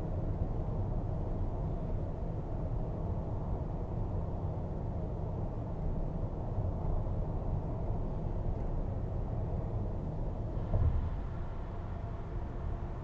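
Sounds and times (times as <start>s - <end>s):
thump: 10.7s - 11.1s.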